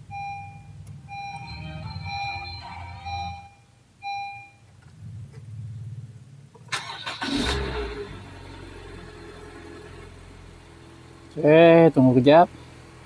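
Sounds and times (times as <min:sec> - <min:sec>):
car engine cranking and idling: 0:00.0 - 0:13.0
car dashboard chime: 0:00.2 - 0:04.7.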